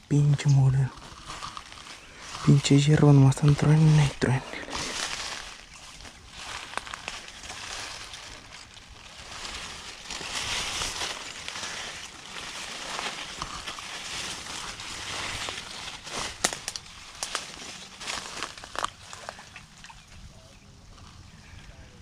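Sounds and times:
dry brush rustling underfoot: 0.0s - 19.8s
sharp twig crack: 16.2s - 17.5s.

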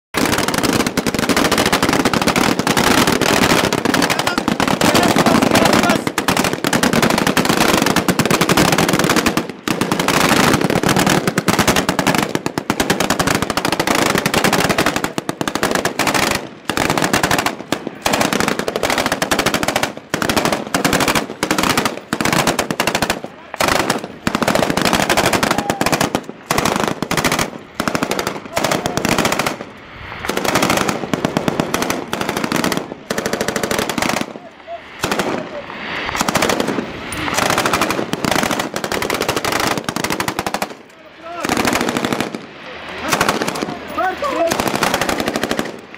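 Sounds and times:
automatic gunfire bursts: 0.2s - 29.7s, 30.3s - 40.8s, 41.4s - 42.4s, 43.0s - 45.8s.

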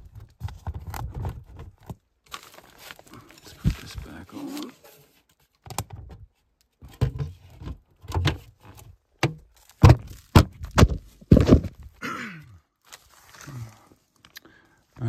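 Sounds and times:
metal panel thuds and knocks: 9.2s - 11.8s.

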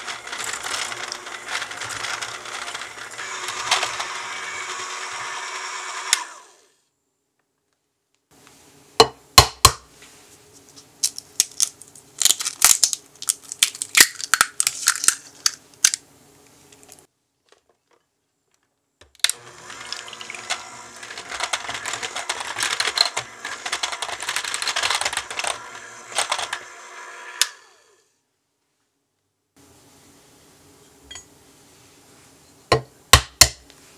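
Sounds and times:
electric hand mixer whirring: 0.0s - 6.8s, 19.3s - 28.0s.

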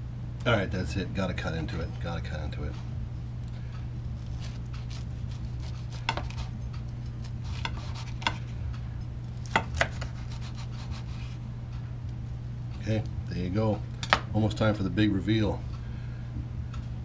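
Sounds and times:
steady low hum: 0.0s - 17.0s
knife sawing through toasted sandwich: 4.0s - 8.5s, 9.7s - 11.4s.

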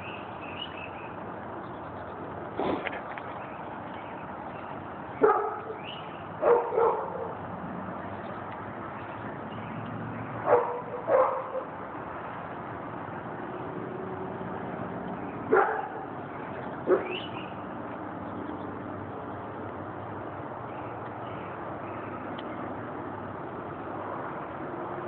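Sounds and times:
dog barking: 5.2s - 5.8s, 6.4s - 7.4s, 10.5s - 11.7s, 15.5s - 16.1s, 16.9s - 17.2s.

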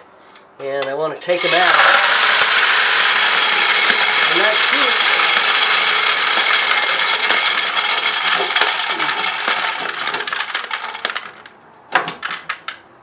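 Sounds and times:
pellets rattling into plastic bucket: 1.4s - 11.5s.

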